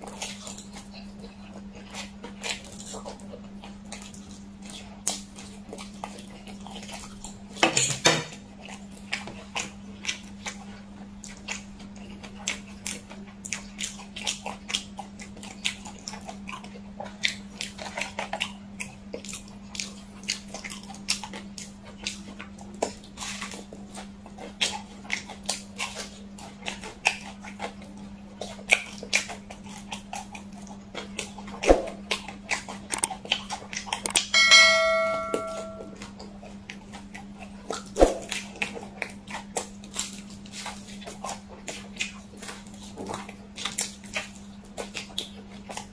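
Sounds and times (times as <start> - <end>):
chewing: 0.0 - 7.6, 8.3 - 34.4, 36.0 - 45.9
steady low hum: 34.3 - 36.0.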